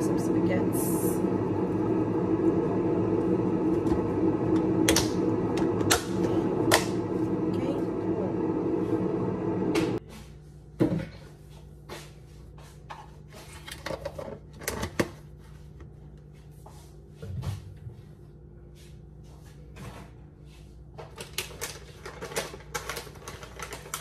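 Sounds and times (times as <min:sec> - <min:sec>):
low steady hum: 0:00.0 - 0:19.4
plastic snack bag crinkling: 0:21.0 - 0:24.0.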